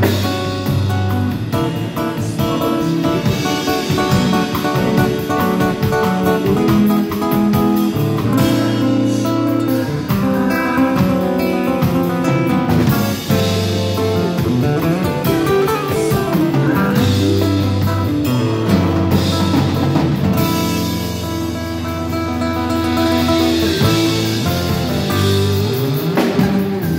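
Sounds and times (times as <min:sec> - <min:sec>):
acoustic guitar plucking: 0:00.0 - 0:26.9
drums: 0:00.0 - 0:26.9.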